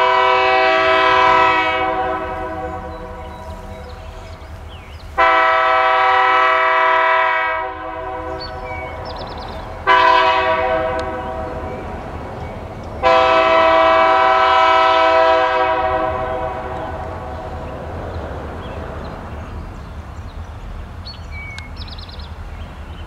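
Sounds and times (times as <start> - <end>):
locomotive air horn blasts: 0.0 - 4.2, 5.2 - 11.9, 13.0 - 17.4.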